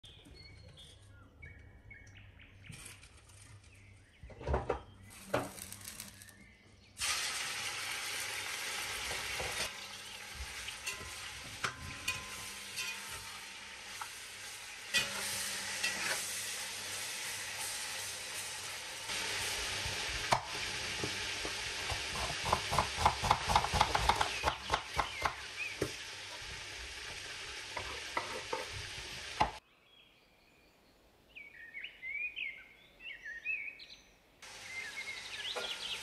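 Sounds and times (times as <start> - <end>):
meat sizzling in hot oil: 7.0 - 29.6, 34.4 - 36.0
metal skimmer scraping pot: 10.7 - 14.1, 14.9 - 16.5.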